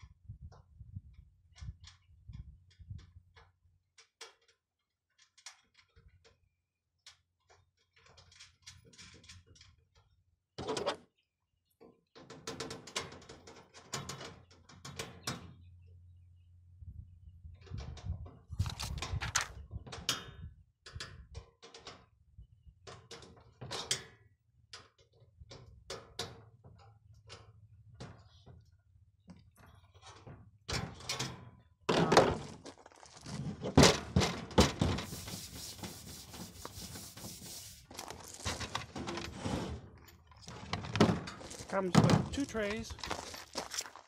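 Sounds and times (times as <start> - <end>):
sheet metal clattering and scraping: 33.3 - 42.6.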